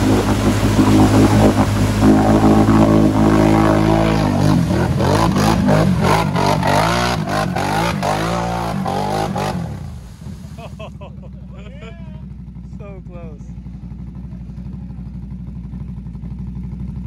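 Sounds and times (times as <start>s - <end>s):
mud splattering: 0.0s - 10.9s
atv engine revving: 0.0s - 15.3s.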